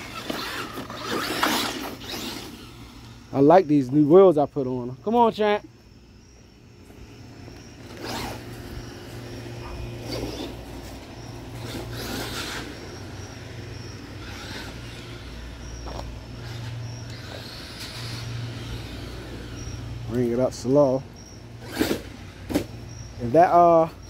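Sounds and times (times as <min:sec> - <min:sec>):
rc truck motor swishing: 0:00.0 - 0:03.5, 0:06.8 - 0:20.1, 0:21.6 - 0:22.8.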